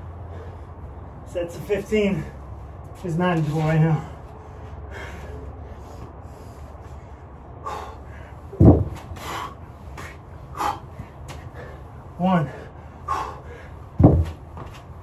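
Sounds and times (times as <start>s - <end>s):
man breathing hard: 0.0s - 1.2s, 3.9s - 14.6s
heavy thud: 8.5s - 9.1s, 14.0s - 14.7s.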